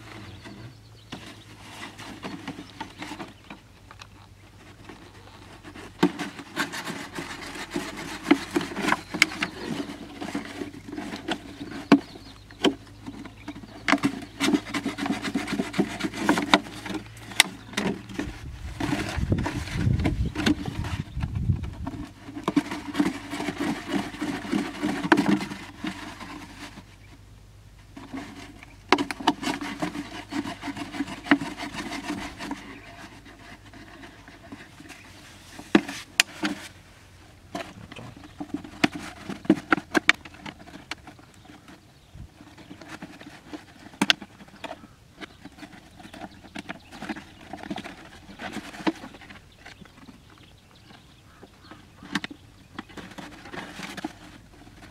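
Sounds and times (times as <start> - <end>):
knife scraping plastic bottle: 5.2 - 26.9, 28.0 - 36.8.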